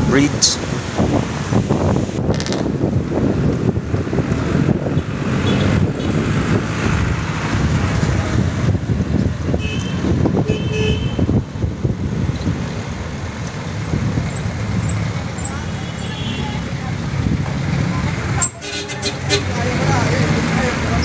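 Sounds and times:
wind rushing over microphone: 0.0s - 15.4s, 16.9s - 18.3s
traffic engines rumbling: 0.0s - 21.0s.

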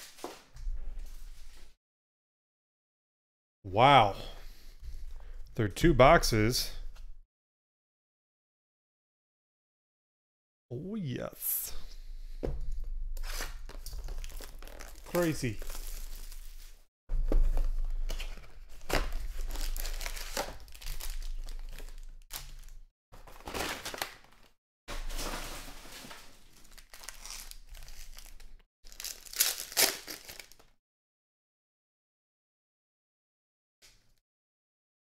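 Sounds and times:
foil wrappers crinkling and ripping: 13.2s - 16.8s, 17.4s - 30.7s.

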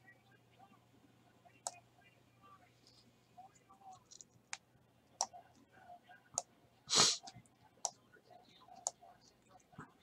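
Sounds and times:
short breathy hiss: 6.9s - 7.2s.

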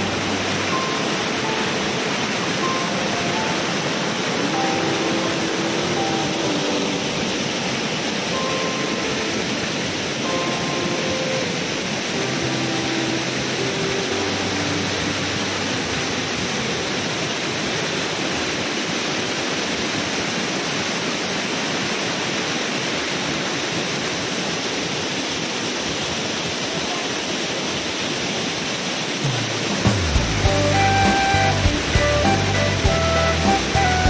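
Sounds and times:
music: 0.0s - 16.4s, 29.3s - 34.0s
waterfall rushing: 0.0s - 34.0s.

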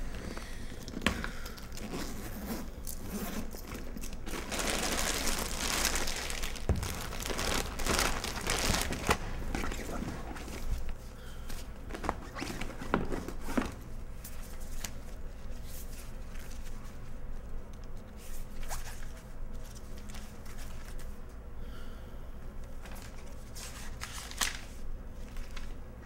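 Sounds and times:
rummaging through a bag: 0.0s - 11.0s.

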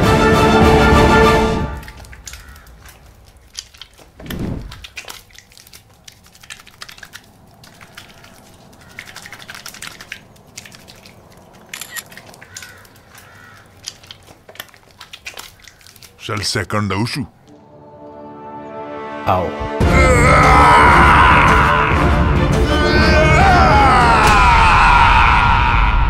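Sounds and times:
water pouring: 0.8s - 16.8s
soapy hands squelching: 1.7s - 17.6s
bird calls: 7.8s - 10.1s, 12.2s - 14.2s.

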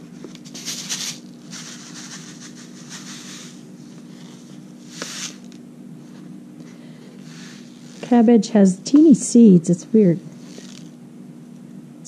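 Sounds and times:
steady low hum: 0.0s - 12.0s
paper seed packet rustling: 0.3s - 5.6s.

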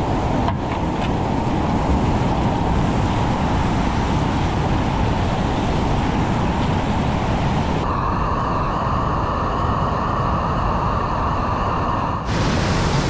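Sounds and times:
whitewater rushing: 0.0s - 7.9s, 12.2s - 13.0s.

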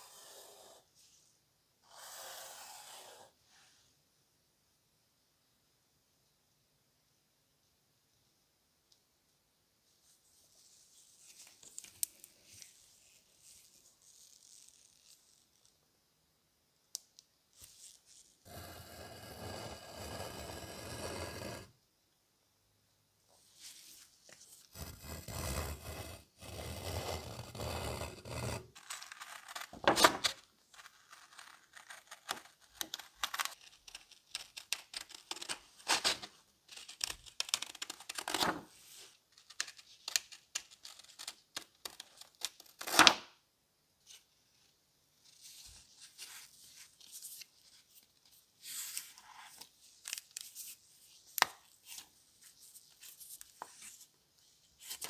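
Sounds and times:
pointed tool scratching paper: 18.5s - 21.7s, 24.7s - 29.7s
paper rustling: 35.2s - 43.1s.

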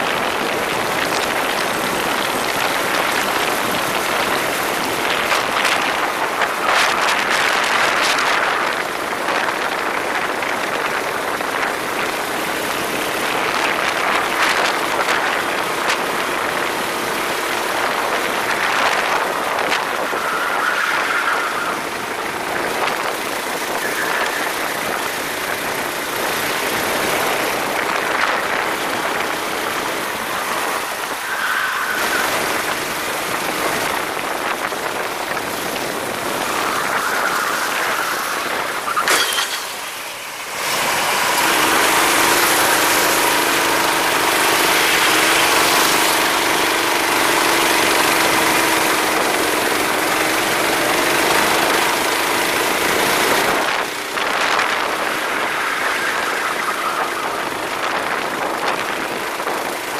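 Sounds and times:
go-kart engine running: 0.0s - 59.9s
rushing noise: 13.2s - 48.0s, 53.0s - 59.9s.

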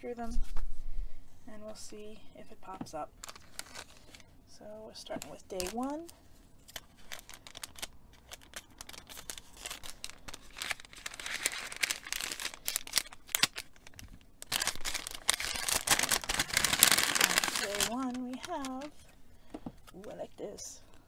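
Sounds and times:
paper bag rustling: 3.2s - 4.2s, 6.7s - 19.1s.

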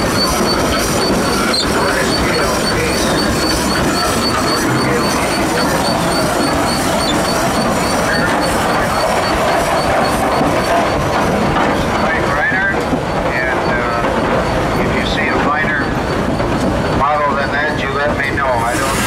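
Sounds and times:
steam traction engine rolling: 0.0s - 19.0s.

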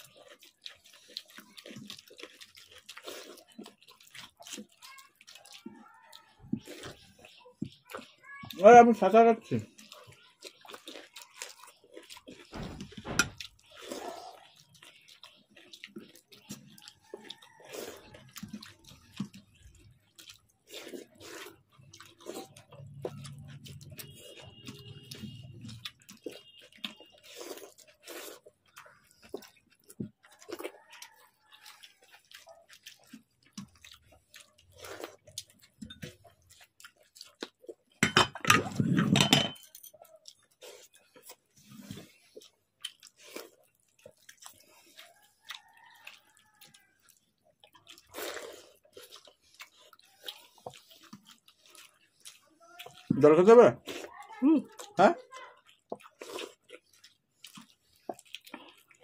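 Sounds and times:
wet squelching of rice: 0.0s - 37.9s, 40.1s - 59.0s
chewing: 0.0s - 59.0s.

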